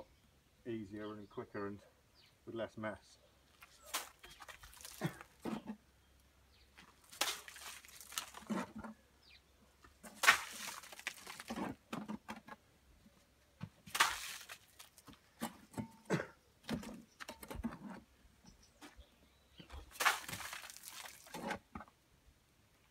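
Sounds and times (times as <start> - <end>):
wet mortar splats: 3.8 - 5.3, 7.0 - 8.5, 10.1 - 11.5, 13.9 - 15.0, 19.8 - 21.4.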